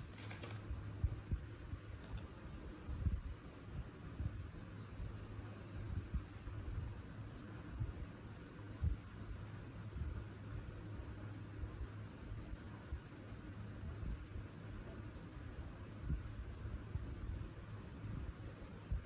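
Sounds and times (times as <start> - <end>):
crayon scratching on paper: 1.0 - 19.0.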